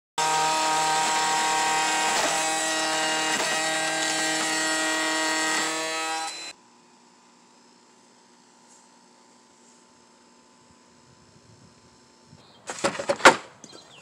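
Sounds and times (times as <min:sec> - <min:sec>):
router whining: 0:00.2 - 0:06.6.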